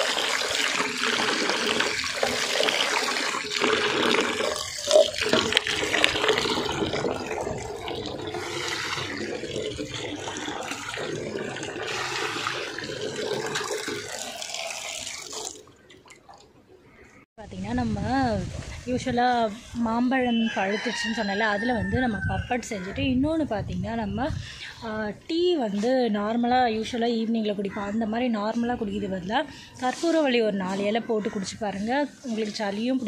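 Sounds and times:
water splashing into plastic mug: 0.0 - 16.5.

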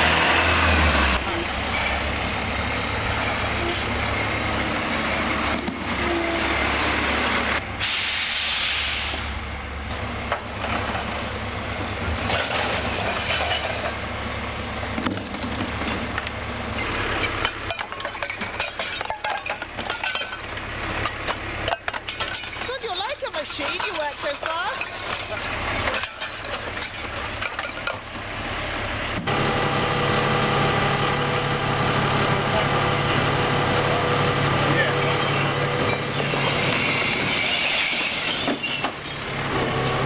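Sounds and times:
heavy lorry engine running: 0.0 - 40.0
loud air hiss: 7.8 - 9.4
clinks and knocks: 17.1 - 28.1.

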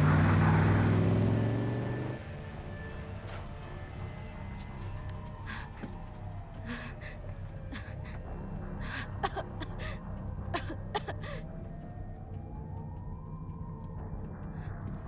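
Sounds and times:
steady low drone: 2.0 - 15.0
woman gasping and whimpering: 6.6 - 10.0, 10.6 - 11.5.

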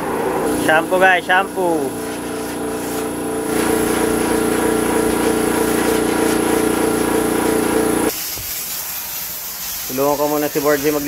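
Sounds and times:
small engine humming: 0.4 - 8.1
faint hiss: 8.1 - 11.0.

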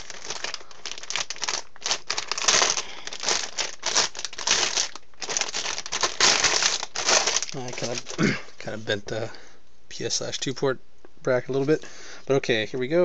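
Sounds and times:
plastic bag crinkling: 0.0 - 8.4.

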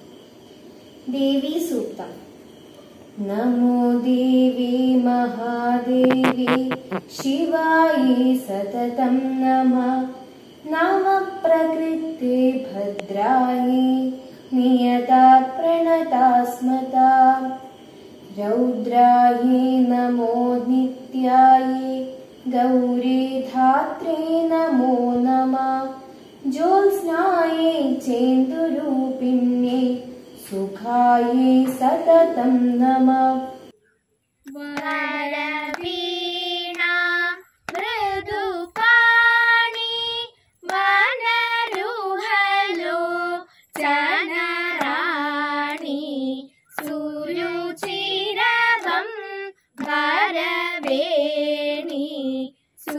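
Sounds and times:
girl singing: 3.2 - 17.7, 18.3 - 33.7, 34.5 - 52.9
child singing: 34.5 - 52.9.

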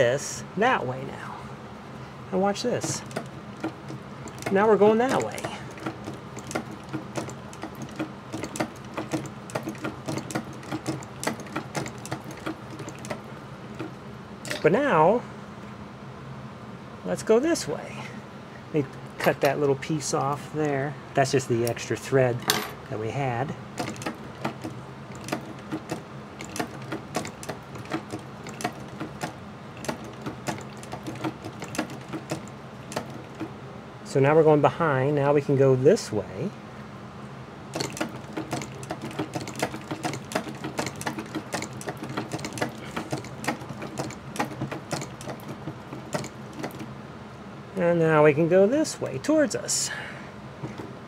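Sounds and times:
sewing machine clattering: 2.5 - 14.8, 23.7 - 33.6, 37.7 - 46.9, 50.6 - 51.0.

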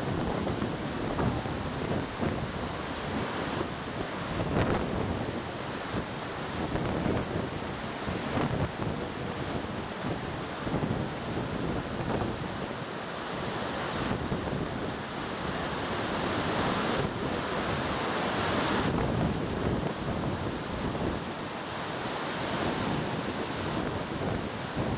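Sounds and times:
waterfall rushing roar: 0.0 - 24.9.

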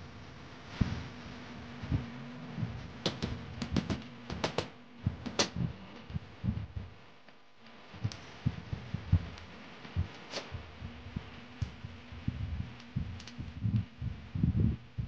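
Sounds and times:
dull thuds and knocks: 2.6 - 6.9.

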